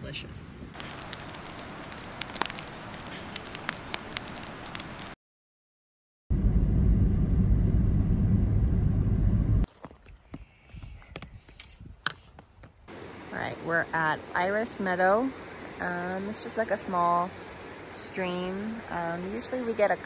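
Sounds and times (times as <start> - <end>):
campfire crackling and popping: 0.7 - 5.2
loud low rumble: 6.3 - 9.7.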